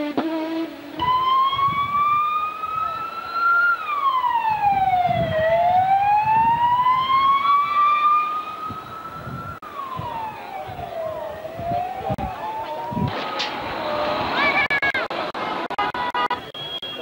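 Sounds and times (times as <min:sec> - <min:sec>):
wailing siren: 0:01.0 - 0:14.3.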